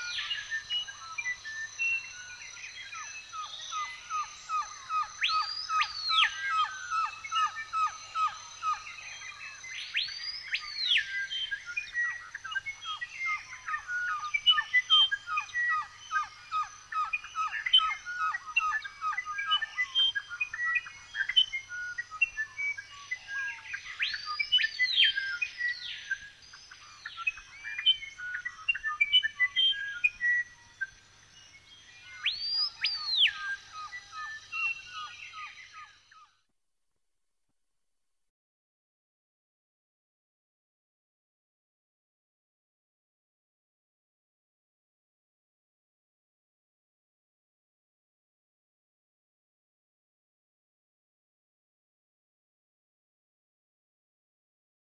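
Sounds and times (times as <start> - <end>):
birds chirping and calling: 0.0 - 36.3.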